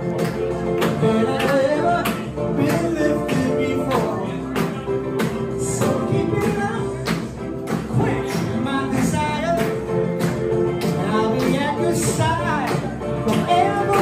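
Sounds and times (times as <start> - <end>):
backing music with percussive beat: 0.0 - 14.0
male vocal group singing: 0.8 - 4.6, 5.6 - 7.1, 11.0 - 14.0.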